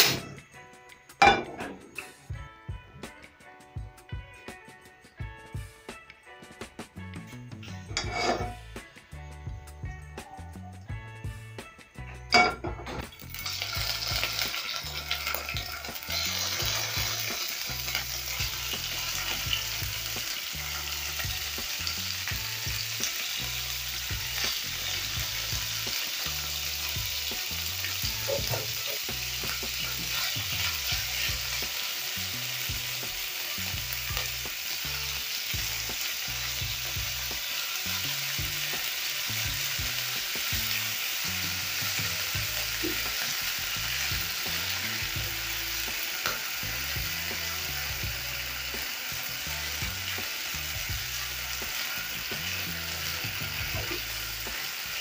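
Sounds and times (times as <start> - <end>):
liver sizzling in oil: 0.0 - 0.4, 6.9 - 55.0
spatula scraping pan: 7.9 - 8.6, 28.2 - 31.7.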